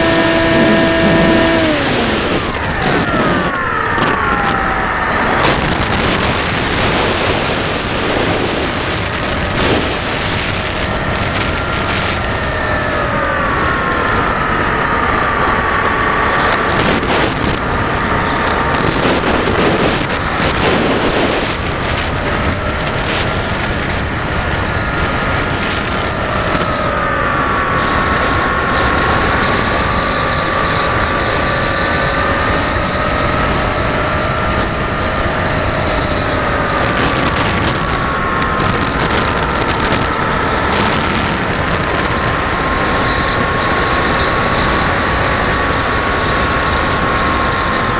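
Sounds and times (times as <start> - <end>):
model aircraft motor whine: 0.0 - 47.9
wind rush over microphone: 0.0 - 47.9.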